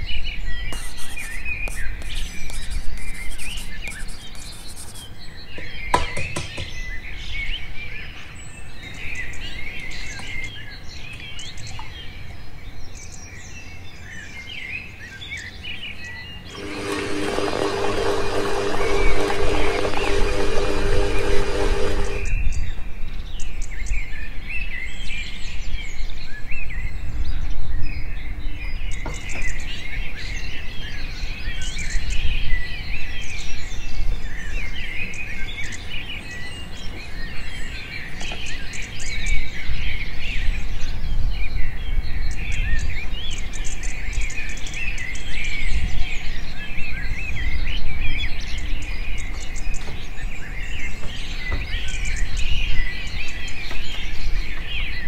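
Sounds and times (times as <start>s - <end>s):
birds chirping and twittering: 0.0s - 55.0s.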